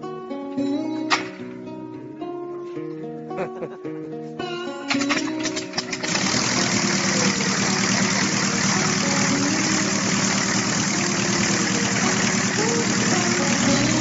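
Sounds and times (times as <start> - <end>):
aircraft engine running: 5.1 - 14.0.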